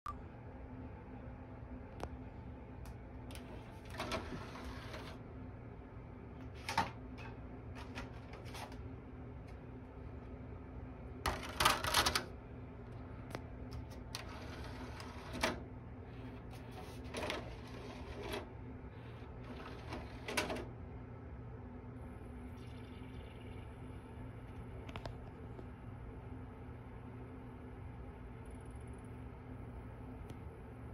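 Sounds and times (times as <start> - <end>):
steady low hum: 0.1 - 30.9
disc changer tray clicks and whirs: 2.9 - 5.2, 6.4 - 8.8, 11.2 - 12.3, 13.3 - 15.8, 16.4 - 20.8.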